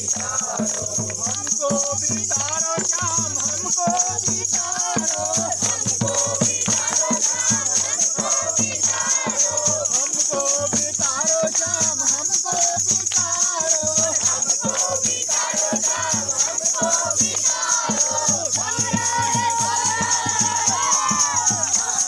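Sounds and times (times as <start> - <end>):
barrel drum beaten: 0.0 - 22.0
group singing a folk song: 0.0 - 22.0
hands clapping: 0.2 - 3.8.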